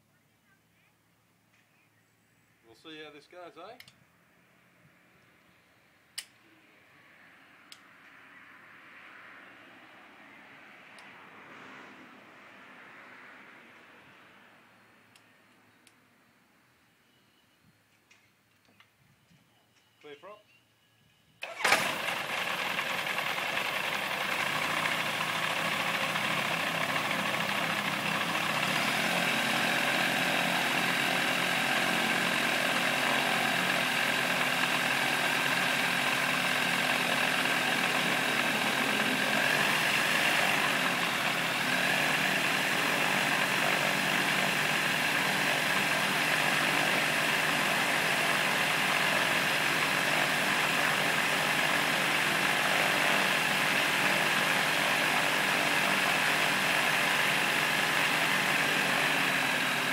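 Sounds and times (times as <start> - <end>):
light aircraft engine starting and idling: 21.4 - 59.9.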